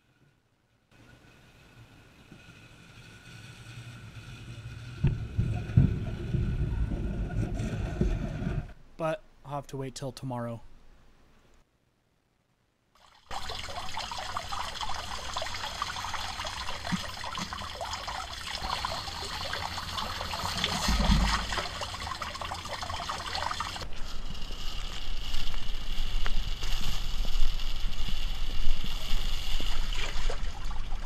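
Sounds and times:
water trickling into storm drain: 13.0s - 23.8s.

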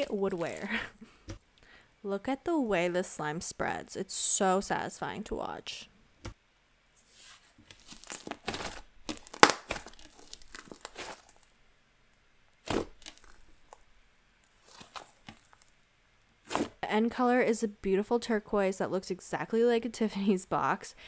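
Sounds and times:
slime crackling and popping: 7.6s - 11.5s, 12.6s - 15.7s.

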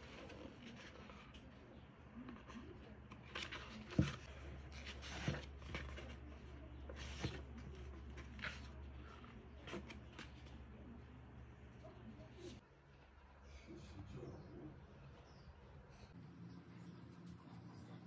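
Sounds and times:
book pages rustling: 0.0s - 10.8s.

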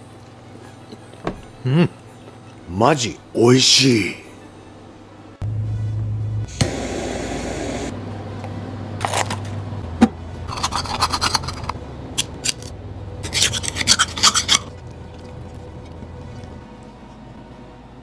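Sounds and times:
low steady hum: 0.0s - 18.0s
blade scraping scallop shell: 10.5s - 11.8s, 12.4s - 14.8s.

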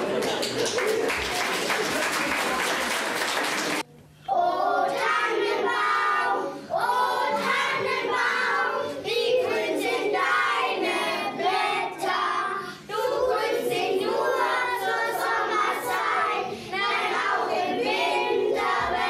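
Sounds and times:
children singing together: 4.3s - 19.0s.

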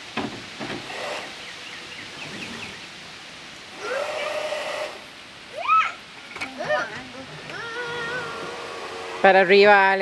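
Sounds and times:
toy fan motor whining: 3.8s - 5.0s, 7.5s - 9.7s.

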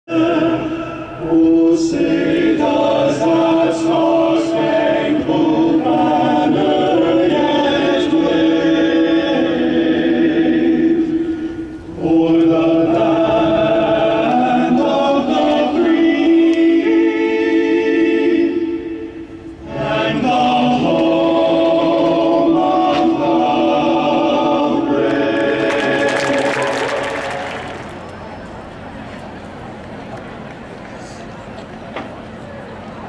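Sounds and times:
choir singing held notes: 0.1s - 28.2s.

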